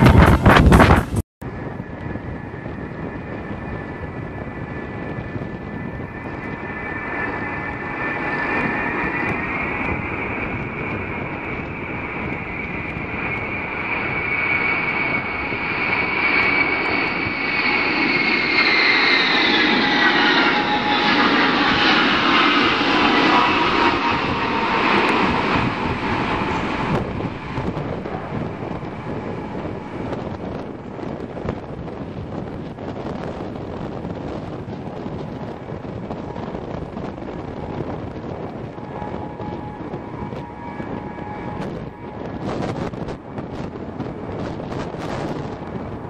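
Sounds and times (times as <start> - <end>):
jet aircraft passing: 0.0 - 46.0.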